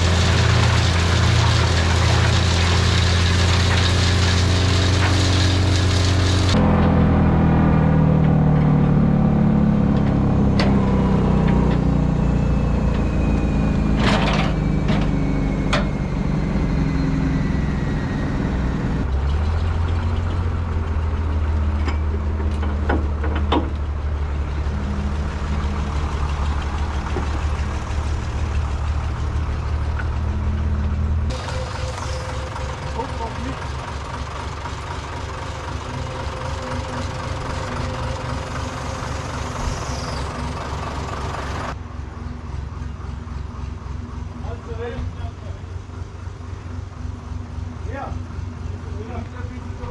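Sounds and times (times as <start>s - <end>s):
tractor engine running: 0.0s - 49.9s
sharp knocks and rattles: 21.7s - 24.0s.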